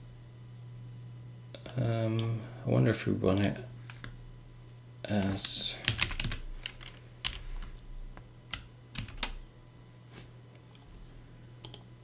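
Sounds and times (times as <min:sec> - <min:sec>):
faint low hum: 0:00.0 - 0:12.0
keyboard keystrokes: 0:08.5 - 0:09.4.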